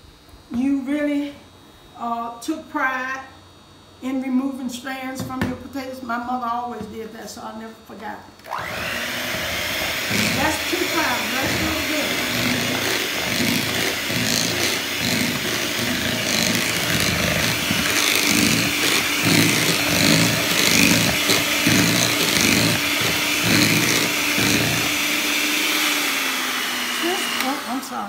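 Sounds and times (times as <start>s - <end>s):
electric hand mixer churning mash: 8.4s - 28.0s.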